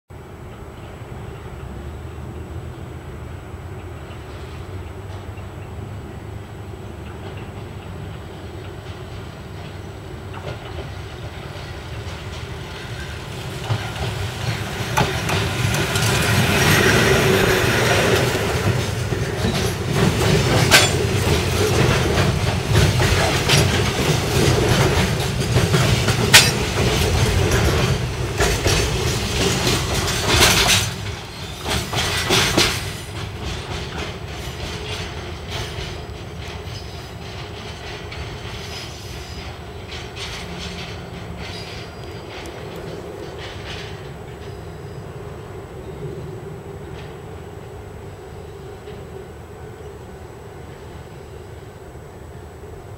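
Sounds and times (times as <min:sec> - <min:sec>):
freight train rumbling: 0:00.1 - 0:52.9
wagons clattering over rail joints: 0:07.0 - 0:45.4.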